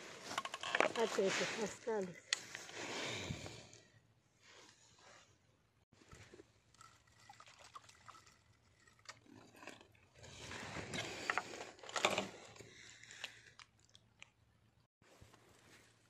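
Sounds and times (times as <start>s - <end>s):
water splashing and trickling: 6.1s - 10.9s.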